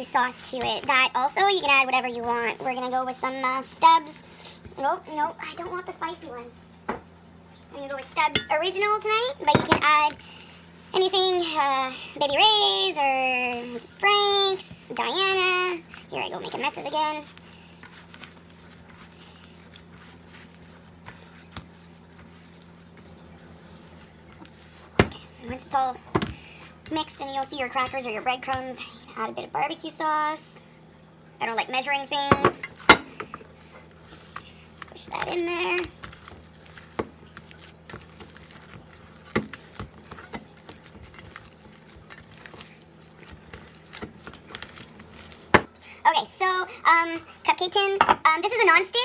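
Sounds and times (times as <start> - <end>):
steady low hum: 0.0 - 49.0
wet squishing of meat: 14.9 - 26.9, 32.7 - 46.0.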